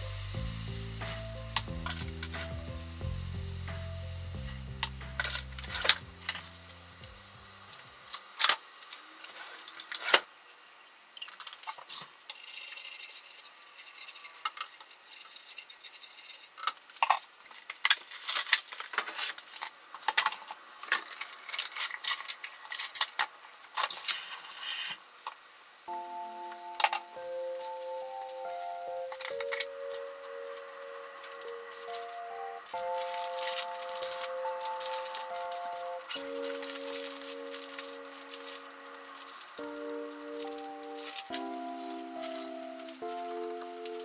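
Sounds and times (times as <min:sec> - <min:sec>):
soft background music: 0:00.0 - 0:08.3, 0:25.9 - 0:44.0
sauce sizzling: 0:00.0 - 0:08.9, 0:26.2 - 0:44.0.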